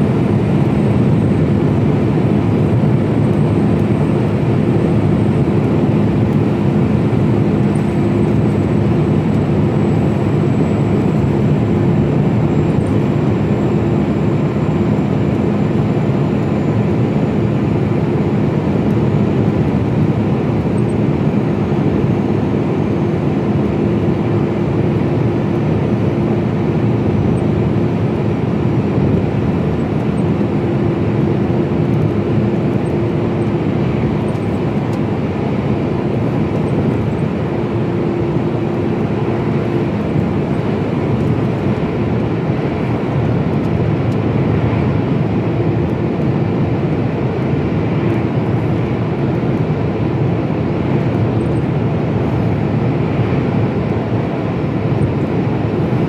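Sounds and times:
lorry engine drone: 0.0s - 56.0s.

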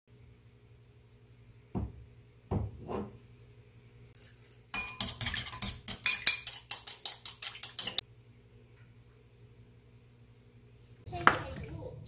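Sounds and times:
metal utensil clinking on bowl: 4.2s - 8.0s
eggs beaten in ceramic bowl: 4.7s - 8.0s.

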